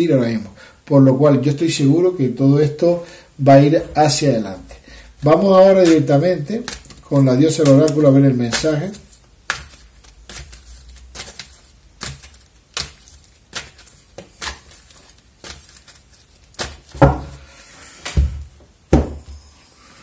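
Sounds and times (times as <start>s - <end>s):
cards being shuffled: 5.2s - 17.4s.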